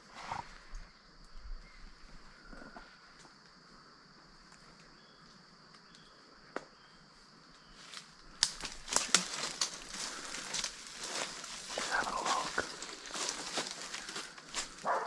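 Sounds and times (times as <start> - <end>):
footsteps crunching through leaves: 7.8 - 15.0
twig snaps: 8.3 - 11.2.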